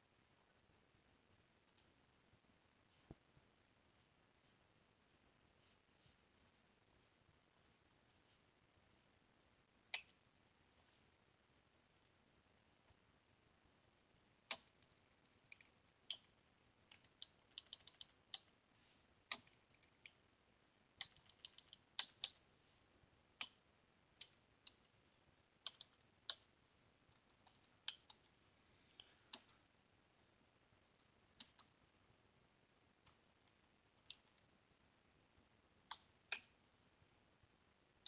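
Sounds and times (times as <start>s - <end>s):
faint computer keyboard typing: 9.8s - 10.2s, 14.4s - 18.6s, 19.2s - 20.3s, 20.9s - 22.5s, 23.3s - 28.3s, 28.9s - 29.7s, 30.9s - 31.8s, 32.9s - 34.6s, 35.8s - 36.6s.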